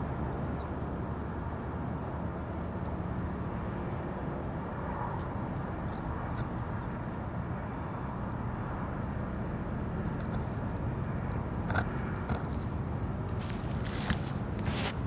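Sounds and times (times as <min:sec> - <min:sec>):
low outdoor rumble: 0:00.0 - 0:15.0
faint crackles: 0:10.0 - 0:15.0.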